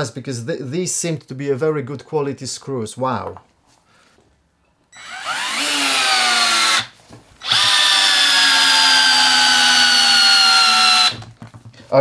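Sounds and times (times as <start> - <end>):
cordless screwdriver whining: 5.0 - 11.2.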